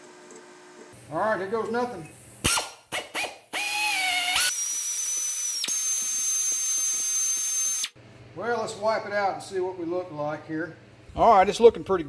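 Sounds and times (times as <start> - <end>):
air drill whining: 2.4 - 8.0.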